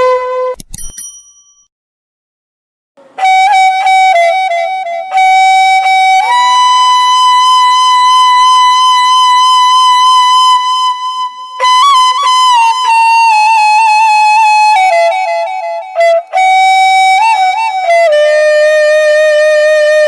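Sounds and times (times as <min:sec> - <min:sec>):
instrumental melody: 0:03.0 - 0:20.0.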